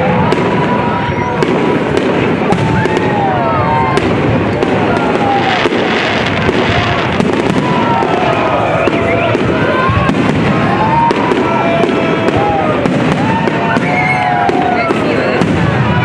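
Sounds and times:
crowd voices and shouts: 0.0 - 16.0
fireworks bursting and crackling: 0.0 - 16.0.

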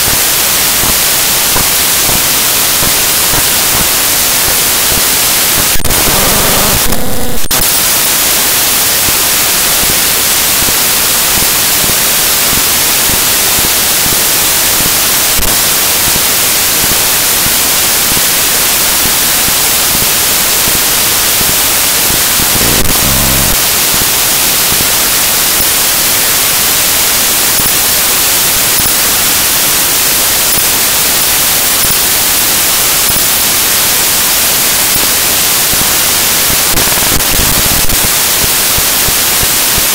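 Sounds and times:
static crackles: 0.0 - 10.7, 19.5 - 39.9
static hiss: 0.0 - 39.9.

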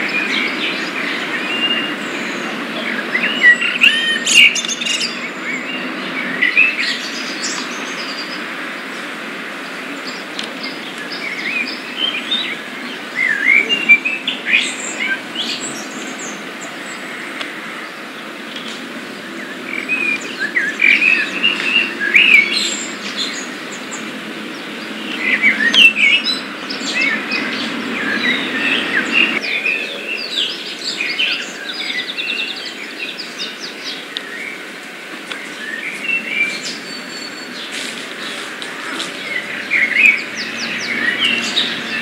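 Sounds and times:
birds chirping and singing: 0.0 - 42.0.

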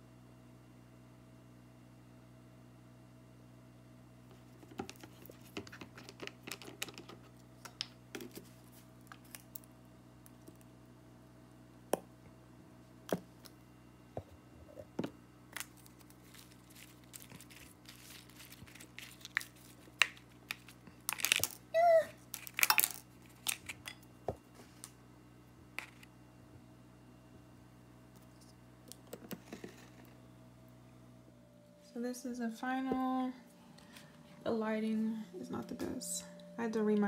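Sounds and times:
plastic fork tossing leaves: 15.5 - 21.6
plastic bottle clicking and crinkling: 15.6 - 21.6.

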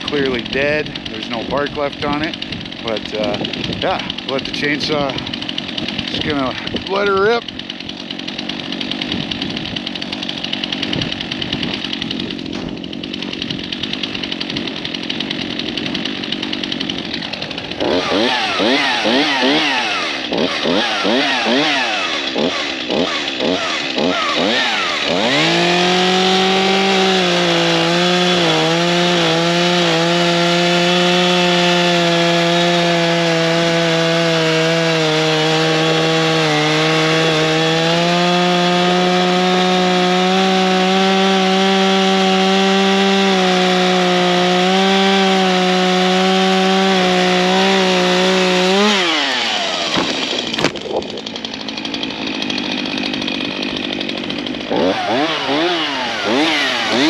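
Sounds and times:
chainsaw cutting at full throttle: 0.0 - 57.0
tree thudding on the ground: 49.9 - 51.4.

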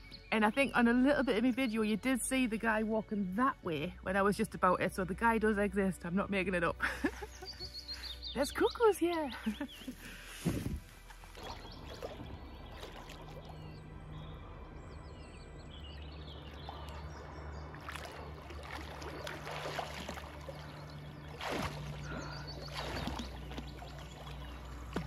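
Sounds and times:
water splashing and sloshing: 9.4 - 25.0
swimming stroke splashes: 16.5 - 25.0.

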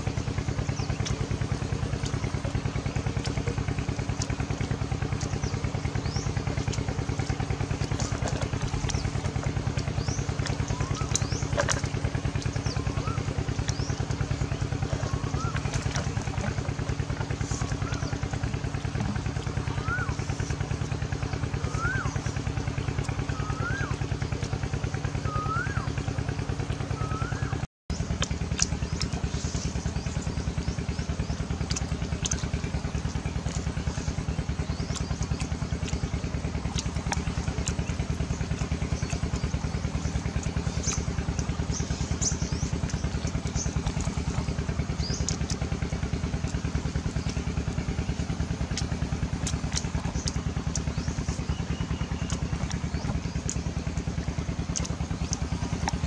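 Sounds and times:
small motor pulsing: 0.0 - 56.0
bird whistling: 10.0 - 11.5, 12.6 - 14.0, 15.0 - 15.6, 19.6 - 20.2, 21.6 - 22.3, 23.3 - 24.0, 25.2 - 26.0, 26.9 - 27.6.

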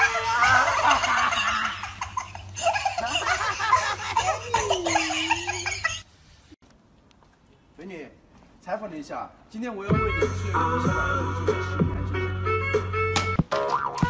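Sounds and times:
people laughing: 0.0 - 6.0.

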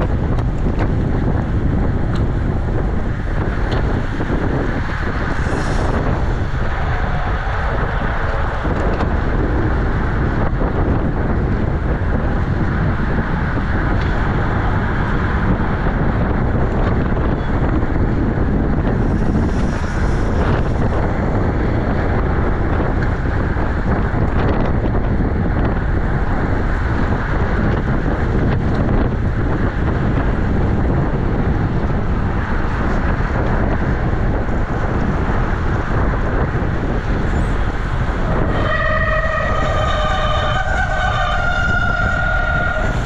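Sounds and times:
wind buffeting microphone: 0.0 - 43.0
horn-like tone changing pitch: 38.2 - 43.0.

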